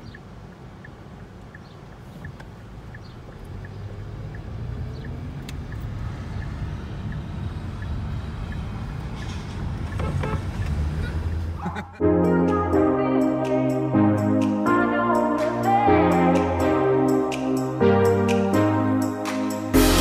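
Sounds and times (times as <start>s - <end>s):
turn signal ticking: 0.0s - 11.4s
car engine and road noise: 0.0s - 12.0s.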